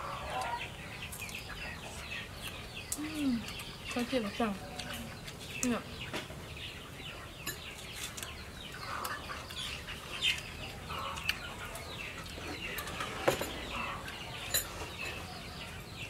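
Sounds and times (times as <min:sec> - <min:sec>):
chickens clucking: 0:00.0 - 0:16.0.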